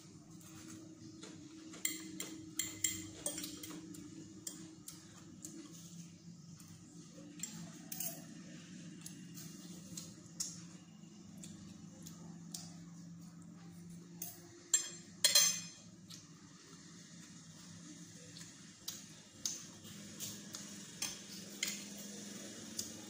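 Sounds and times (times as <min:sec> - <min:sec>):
low steady hum: 0:00.0 - 0:23.0
cutlery clinking on a plate: 0:01.7 - 0:04.7, 0:07.3 - 0:08.4, 0:14.2 - 0:15.9.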